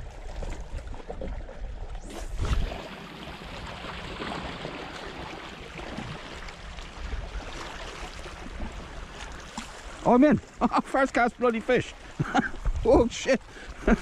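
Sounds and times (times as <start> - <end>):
wind thud on microphone: 2.0 - 2.8.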